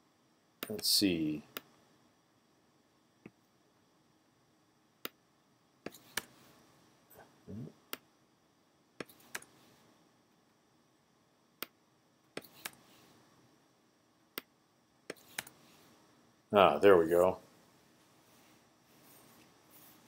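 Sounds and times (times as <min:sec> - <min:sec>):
mouse and keyboard clicks: 0:05.8 - 0:06.3, 0:09.0 - 0:09.5, 0:12.4 - 0:12.8, 0:15.1 - 0:15.6.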